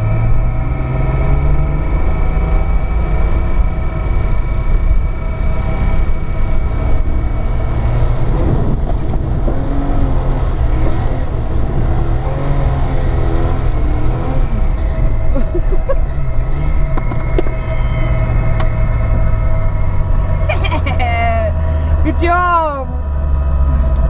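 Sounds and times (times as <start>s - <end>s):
car engine running: 0.0s - 24.0s.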